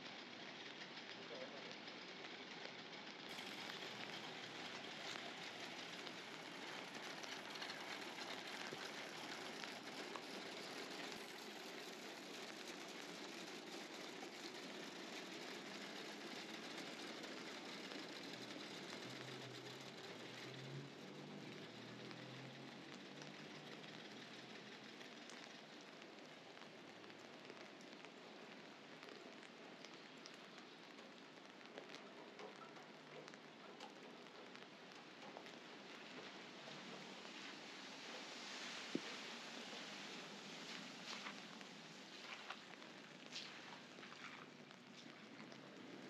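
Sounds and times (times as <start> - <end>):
rain falling on wet street: 0.0 - 46.0.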